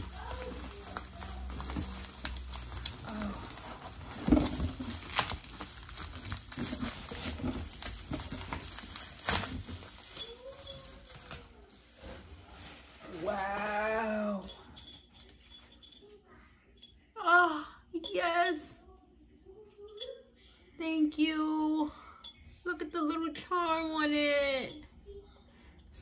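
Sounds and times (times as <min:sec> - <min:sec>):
bubble wrap crinkling: 0:00.0 - 0:15.8.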